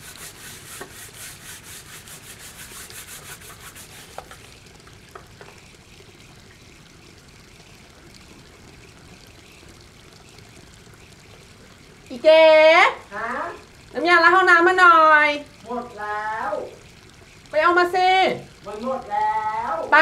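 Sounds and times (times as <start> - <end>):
scrubbing a tiled floor: 0.0 - 4.5
faint steady hiss: 0.0 - 20.0.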